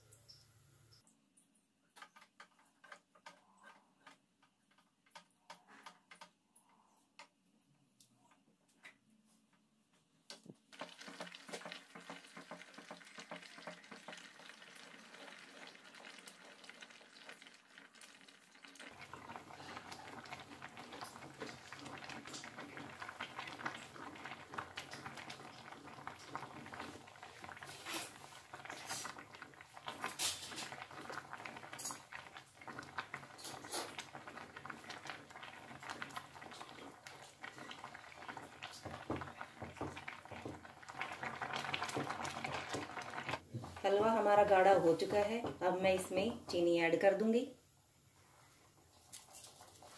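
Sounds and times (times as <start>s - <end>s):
milk bubbling at a boil: 10.3s - 46.6s.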